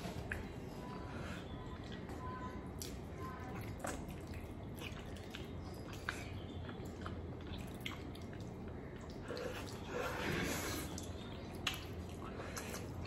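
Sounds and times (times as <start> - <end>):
low steady hum: 0.0 - 13.0
wet clicks and smacks: 11.0 - 13.0.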